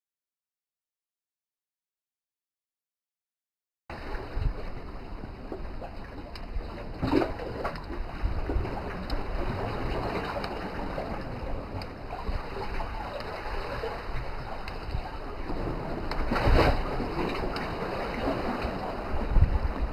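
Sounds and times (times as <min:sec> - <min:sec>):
small waves lapping rocks: 0:03.9 - 0:19.9
wind rumbling on microphone: 0:03.9 - 0:19.9
faint clicks: 0:14.6 - 0:15.0.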